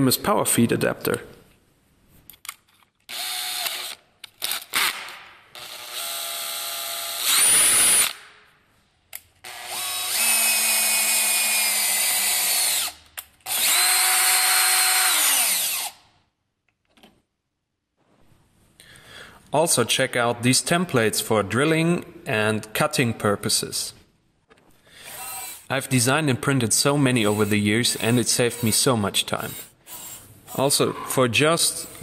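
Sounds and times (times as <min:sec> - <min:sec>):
drill motor whining: 0:05.6 - 0:08.2, 0:09.4 - 0:16.0, 0:25.0 - 0:25.7, 0:27.2 - 0:30.7.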